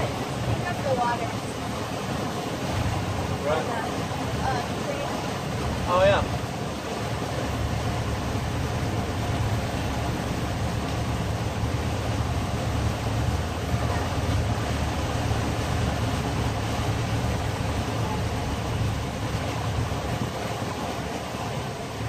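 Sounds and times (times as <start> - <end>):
motorboat engine running: 0.0 - 22.0
wind and water hiss: 0.0 - 22.0.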